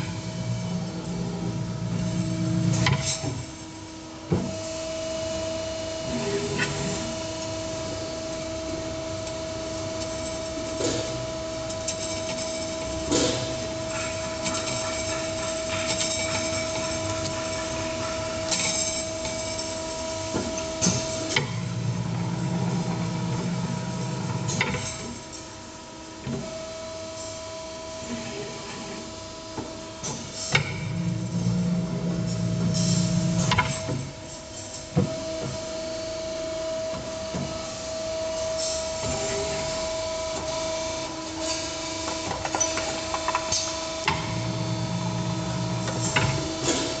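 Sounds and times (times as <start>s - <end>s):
machine whine: 4.3s - 25.1s.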